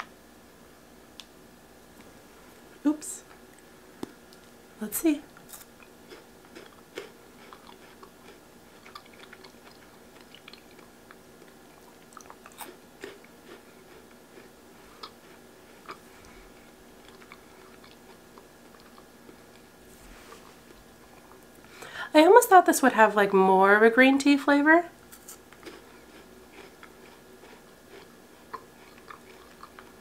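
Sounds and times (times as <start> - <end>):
mouth chewing crunchy wafer: 5.5 - 19.7, 25.1 - 30.0.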